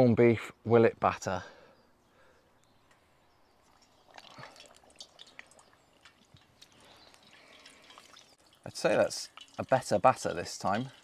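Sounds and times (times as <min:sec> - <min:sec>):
oil crackling and sizzling: 0:03.4 - 0:11.0.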